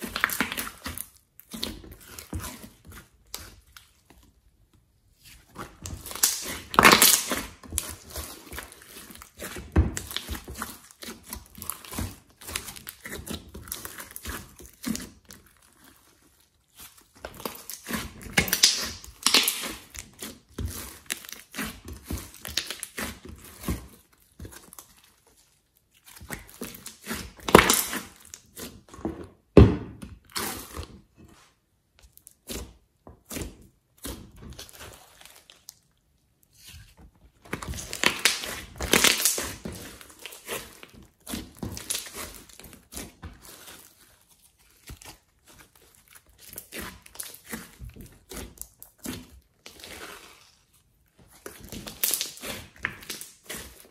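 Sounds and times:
slime squishing and clicking: 0:05.6 - 0:15.4, 0:16.8 - 0:23.6, 0:37.5 - 0:43.6, 0:51.3 - 0:53.6.

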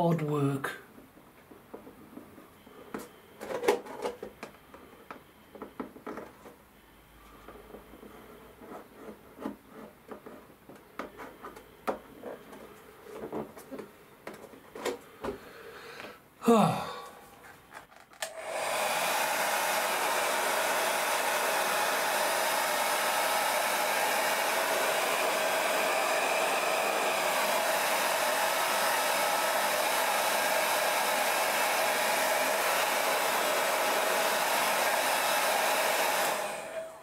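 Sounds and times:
hair dryer blowing: 0:18.2 - 0:37.0.

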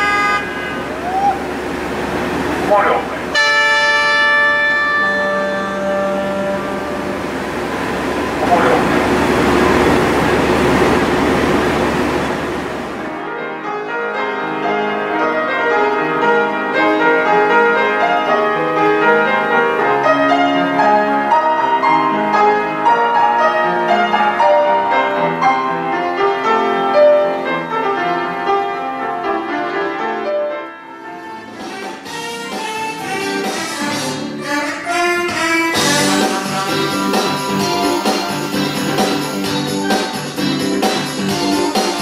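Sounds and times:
steady rushing noise: 0:00.4 - 0:03.4, 0:06.2 - 0:13.2
solo grand piano: 0:03.8 - 0:31.5.

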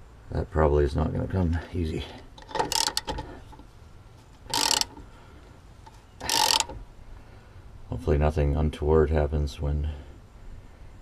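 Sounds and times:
hand ratchet clicking: 0:02.4 - 0:03.6, 0:04.4 - 0:05.0, 0:05.8 - 0:06.8.

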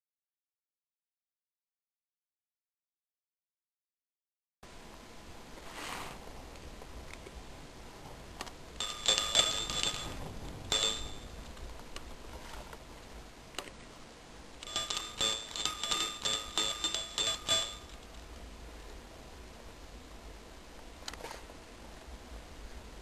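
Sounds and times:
small bell jingling: 0:08.8 - 0:11.4, 0:14.6 - 0:18.1.

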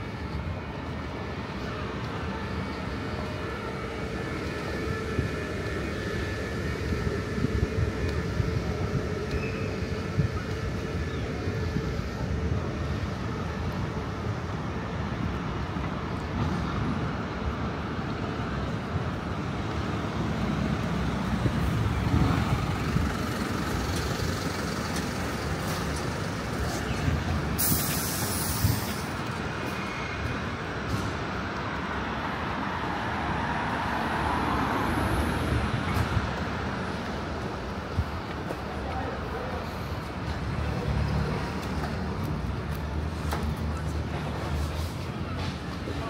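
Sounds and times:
city traffic rumble: 0:00.0 - 0:46.0
sharp hiss of air: 0:27.5 - 0:29.2.

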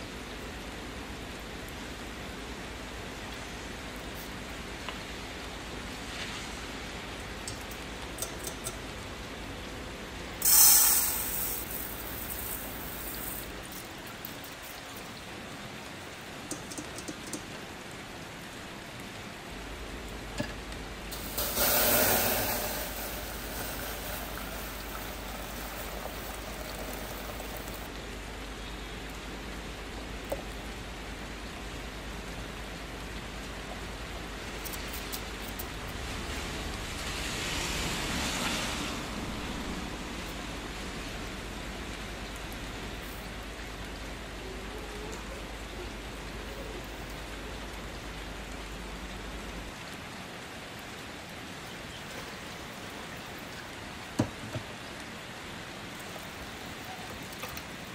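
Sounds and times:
rice pattering into metal bowl: 0:10.4 - 0:13.8, 0:21.1 - 0:27.9
water pouring onto rice: 0:10.4 - 0:14.9, 0:21.1 - 0:27.9.

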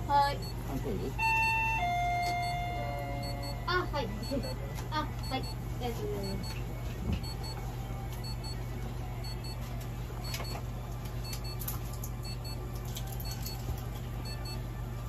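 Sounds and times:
low electrical hum: 0:00.0 - 0:15.0
high-pitched double beep: 0:01.2 - 0:03.6.

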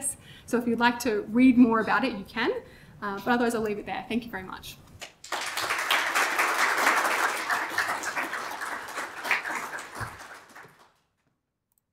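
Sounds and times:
audience applauding: 0:05.2 - 0:11.1.

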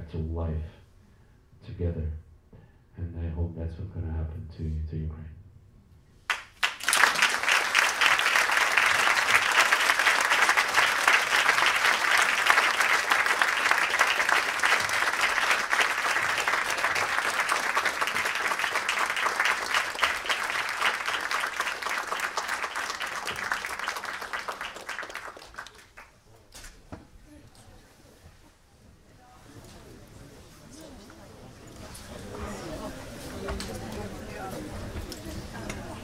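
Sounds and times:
audience clapping: 0:06.2 - 0:26.3.

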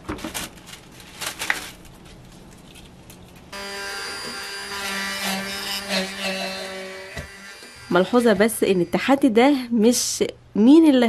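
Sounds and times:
leaves being handled: 0:00.0 - 0:03.5
immersion blender motor whine: 0:03.6 - 0:05.9, 0:06.6 - 0:09.2.

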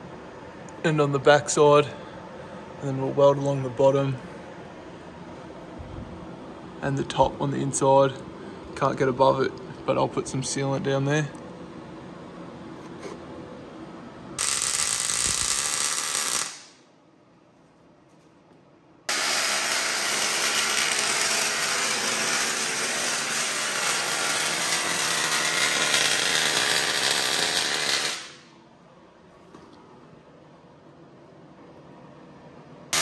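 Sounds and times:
arc welding hiss: 0:14.4 - 0:16.8, 0:19.1 - 0:28.5.

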